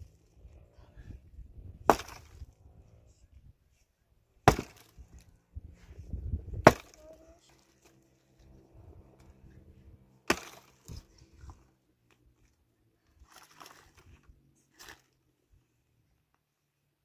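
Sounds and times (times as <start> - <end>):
dry wood splitting and snapping: 1.8 - 2.5, 4.4 - 5.2, 6.5 - 7.1, 10.2 - 11.2
axe chopping branch: 1.9 - 2.4, 4.4 - 5.1, 6.6 - 7.2, 10.2 - 11.0.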